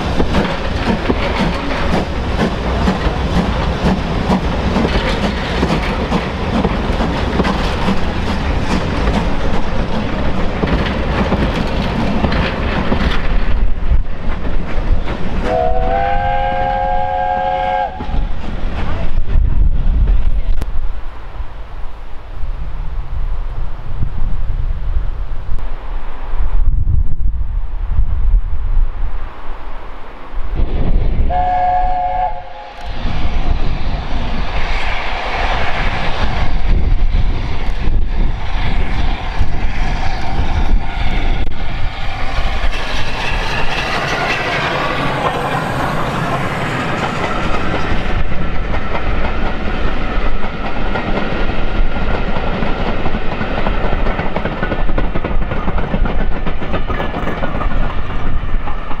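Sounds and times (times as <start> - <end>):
wheels clattering over rail joints: 0.0 - 15.5, 52.1 - 59.0
train passing by: 0.0 - 59.0
steam locomotive whistle: 15.5 - 18.2, 31.3 - 32.9.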